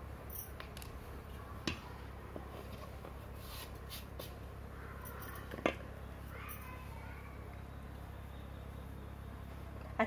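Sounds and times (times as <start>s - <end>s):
soft rustle: 2.4s - 4.4s.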